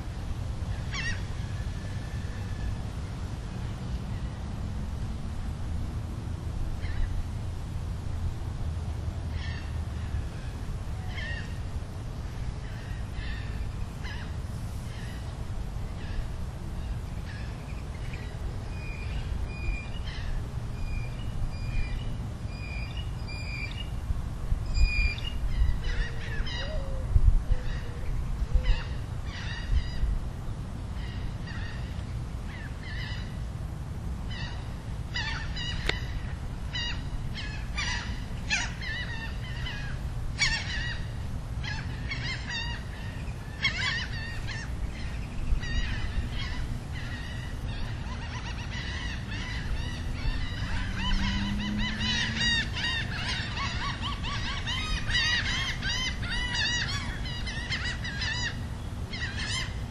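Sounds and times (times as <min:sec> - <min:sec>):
birds calling: 0:00.7 - 0:02.8, 0:24.7 - 0:30.1, 0:34.3 - 0:59.9.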